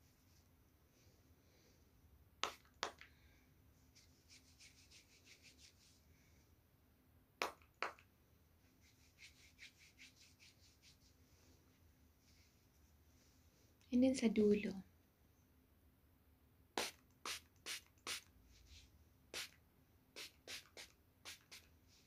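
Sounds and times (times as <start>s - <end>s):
fingers scratching through hair: 4.0s - 6.0s, 8.8s - 11.2s, 20.2s - 21.7s
pump spray bottle spraying: 20.2s - 21.6s.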